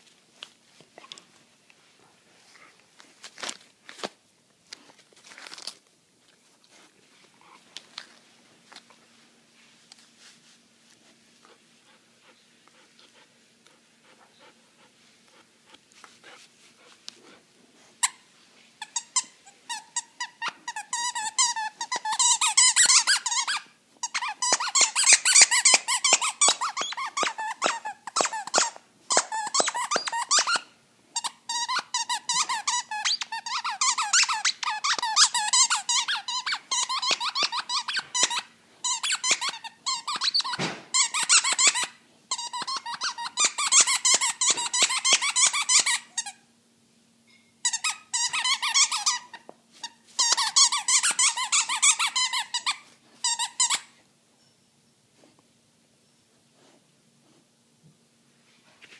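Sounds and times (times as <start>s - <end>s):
squeaky toy squeaking: 18.8s - 46.4s, 47.6s - 53.9s.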